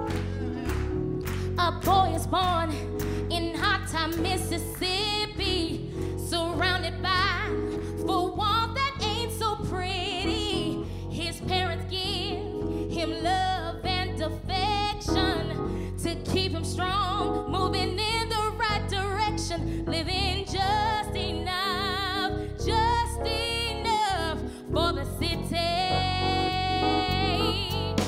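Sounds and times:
live band playing: 0:00.0 - 0:03.2, 0:26.5 - 0:28.0
woman singing into a microphone: 0:01.6 - 0:28.0.

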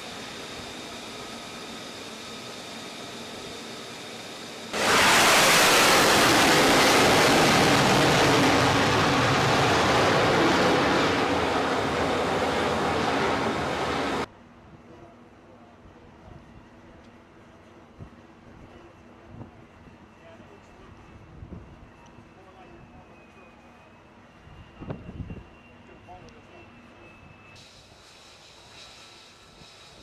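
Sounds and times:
loud jet engine: 0:00.0 - 0:14.3, 0:24.0 - 0:30.0
steady hiss with high whine: 0:27.6 - 0:30.0.

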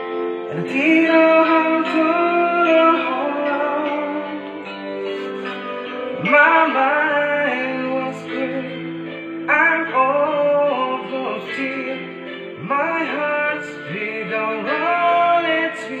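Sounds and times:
instrumental backing: 0:00.0 - 0:16.0
man singing: 0:00.0 - 0:16.0.

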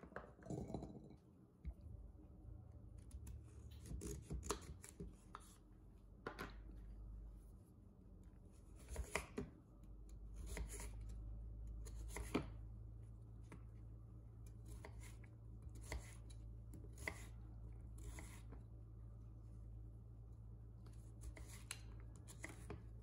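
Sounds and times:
knife slicing on wooden board: 0:15.8 - 0:16.2, 0:18.0 - 0:18.5.

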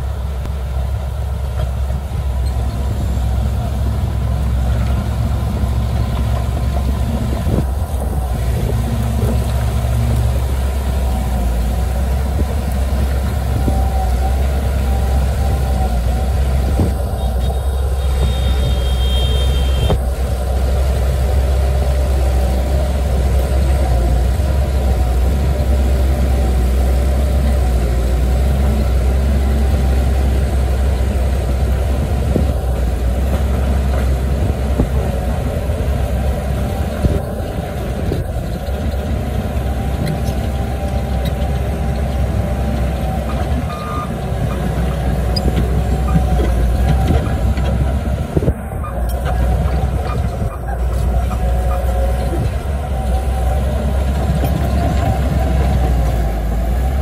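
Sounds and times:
bulldozer diesel engine running: 0:00.0 - 0:57.0
bulldozer knocks: 0:36.5 - 0:57.0.

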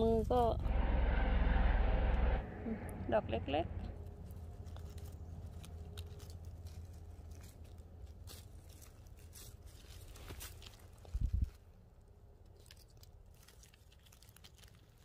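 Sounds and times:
pine needles and leaves rustling: 0:02.8 - 0:15.0
small crackles: 0:03.9 - 0:15.0.

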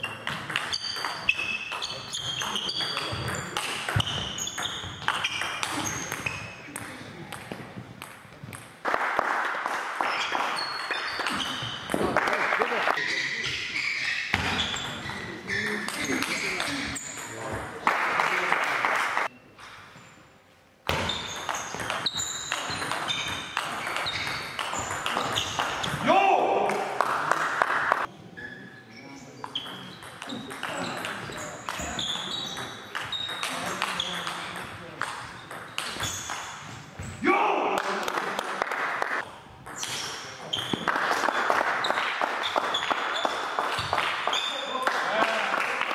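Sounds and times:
shoes squeaking on floor: 0:00.0 - 0:06.7, 0:10.0 - 0:12.0, 0:13.0 - 0:17.6, 0:20.9 - 0:26.1, 0:28.3 - 0:34.6, 0:35.2 - 0:37.2, 0:39.7 - 0:40.9, 0:41.8 - 0:44.8
table tennis ball hits: 0:00.0 - 0:08.7, 0:20.9 - 0:26.0, 0:29.5 - 0:36.7.

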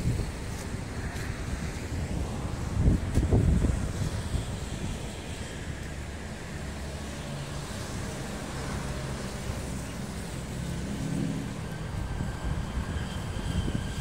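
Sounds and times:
passing cars and motorcycles: 0:00.0 - 0:14.0.

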